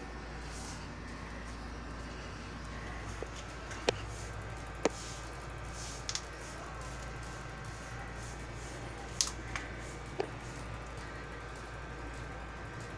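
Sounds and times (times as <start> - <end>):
steady low hum: 0.0 - 12.9.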